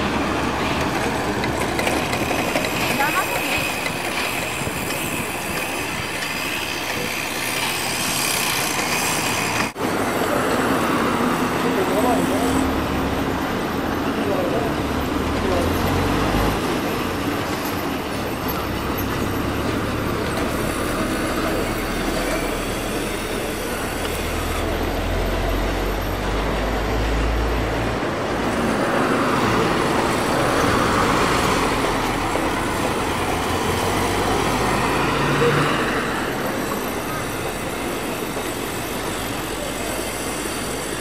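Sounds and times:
truck engine rumble: 0:00.0 - 0:41.0
passing vehicle hiss: 0:19.0 - 0:41.0.

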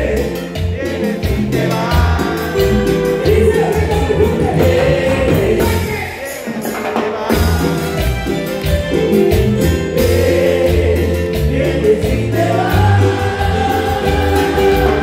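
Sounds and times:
voices singing together: 0:00.0 - 0:08.2, 0:09.9 - 0:15.0
drums and bass: 0:00.0 - 0:15.0.

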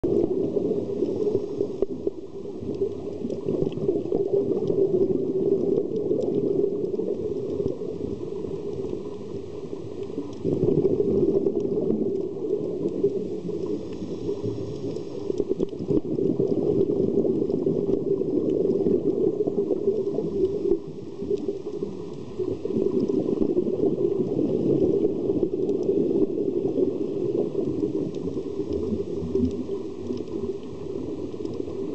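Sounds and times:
muffled underwater rumble: 0:00.0 - 0:31.9
regulator bubbles: 0:00.0 - 0:31.9
faint tiny clicks: 0:09.9 - 0:10.5, 0:11.4 - 0:16.0, 0:27.6 - 0:31.9.

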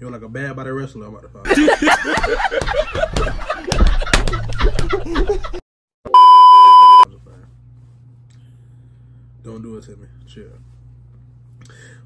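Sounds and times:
high censor bleep tone: 0:06.1 - 0:07.0.

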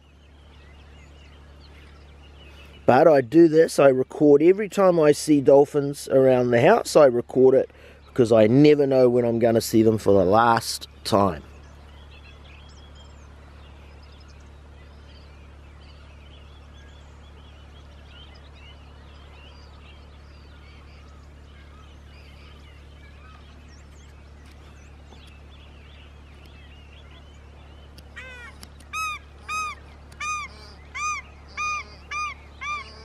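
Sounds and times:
small birds chirping: 0:00.0 - 0:33.0
ducks honking shrilly: 0:28.0 - 0:33.0.

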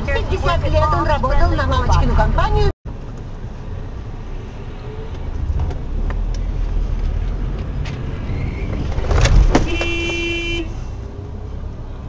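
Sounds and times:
road rumble in car cabin: 0:00.0 - 0:12.0
heavy thumps: 0:08.7 - 0:10.4
car horn: 0:09.5 - 0:11.0.

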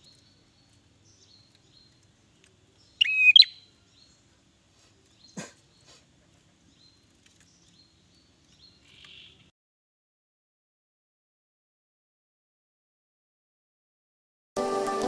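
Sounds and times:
faint high bird chips: 0:00.0 - 0:03.8
bird calling: 0:00.0 - 0:09.5
short raspy bird note: 0:03.0 - 0:03.5.

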